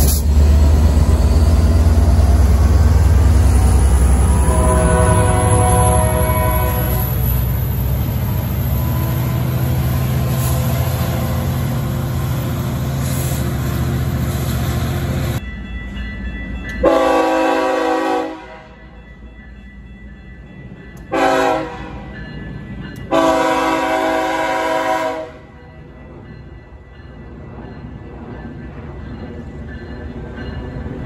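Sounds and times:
diesel locomotive engine rumble: 0:00.0 - 0:31.0
locomotive air horn: 0:04.0 - 0:07.6, 0:16.8 - 0:18.8, 0:21.1 - 0:22.1, 0:23.1 - 0:25.5.

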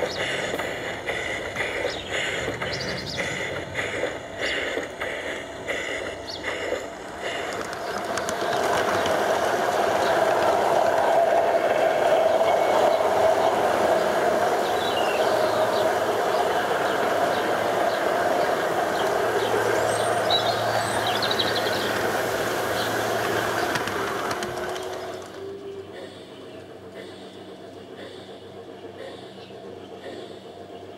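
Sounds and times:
low hum: 0:00.0 - 0:30.9
wheels rolling on rails: 0:00.0 - 0:30.9.

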